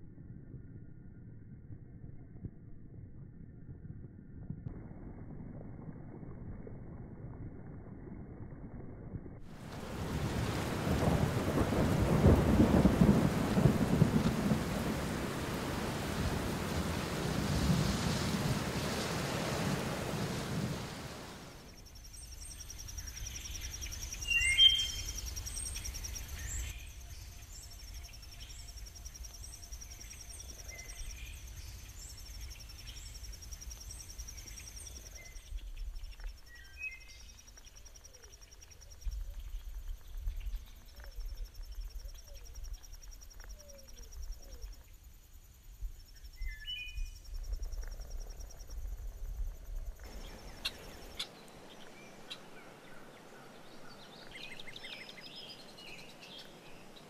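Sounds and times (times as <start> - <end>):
low rumble: 0.0 - 24.3
insects trilling: 9.6 - 57.0
high chirping: 21.7 - 35.4.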